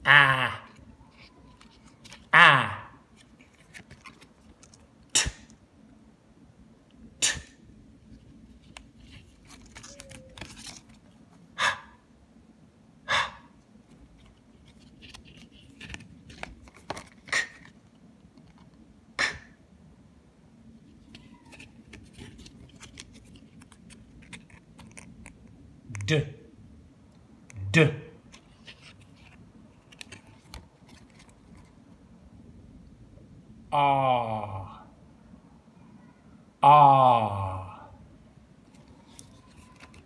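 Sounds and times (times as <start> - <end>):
laminated cards flipping: 3.1 - 4.9, 8.1 - 11.2, 13.8 - 18.8, 20.9 - 25.5, 28.3 - 31.8, 38.7 - 40.0.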